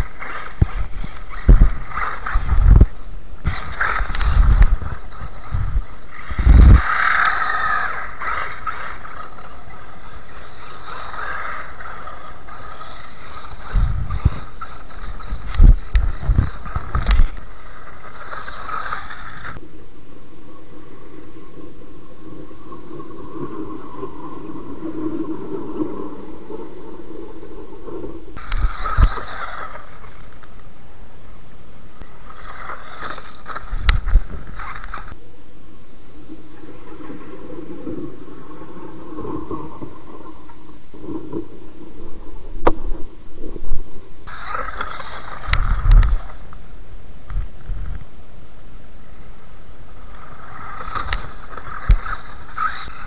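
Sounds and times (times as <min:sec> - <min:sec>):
rc car motor whining: 0:00.0 - 0:19.6, 0:28.4 - 0:30.8, 0:32.0 - 0:35.2, 0:44.3 - 0:46.7, 0:49.9 - 0:53.0.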